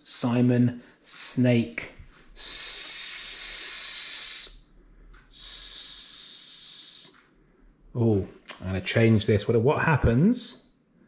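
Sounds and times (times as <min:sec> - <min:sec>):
man making hissing s sound: 0:02.4 - 0:04.6, 0:05.3 - 0:07.1.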